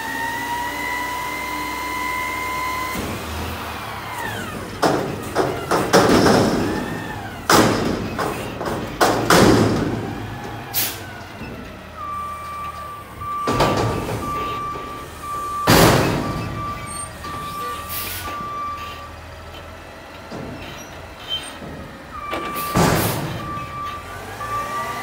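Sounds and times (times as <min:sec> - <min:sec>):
truck engine and hydraulics: 0:00.0 - 0:25.0
dumpster banging against metal: 0:02.7 - 0:25.0
on-off beeping alarm: 0:12.0 - 0:18.9.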